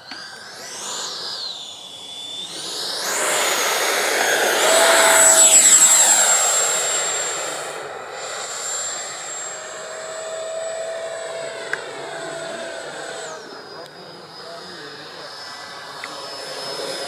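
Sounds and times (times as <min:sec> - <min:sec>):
model jet fan whining past: 0:00.0 - 0:17.0.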